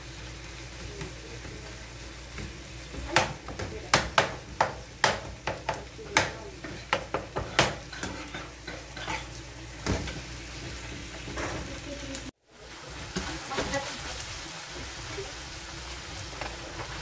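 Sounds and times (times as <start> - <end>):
soft sizzle: 0.0 - 17.0
metal spoon scraping a frying pan: 6.6 - 9.4.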